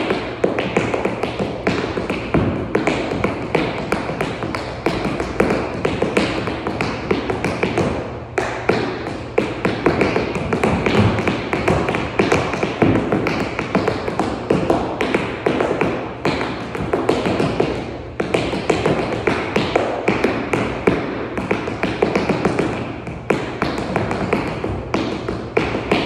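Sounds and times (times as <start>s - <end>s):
tap shoes striking floor: 0.0s - 26.0s.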